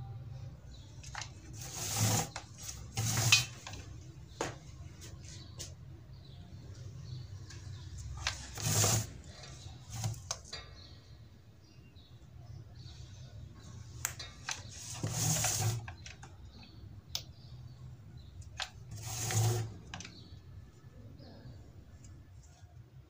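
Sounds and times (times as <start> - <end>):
glue gun nozzle scraping metal: 1.6 - 3.8, 8.3 - 10.3, 14.5 - 16.0, 18.6 - 20.2.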